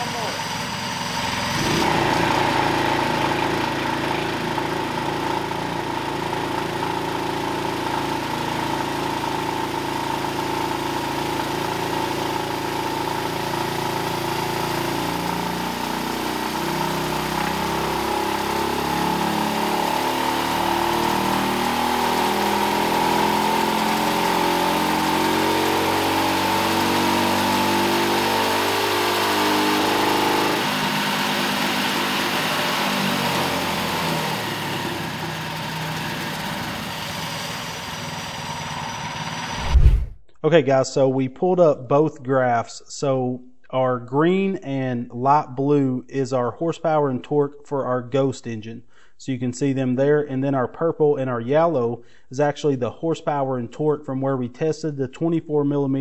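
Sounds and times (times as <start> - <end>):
racing engine revving under load: 1.0 - 35.6.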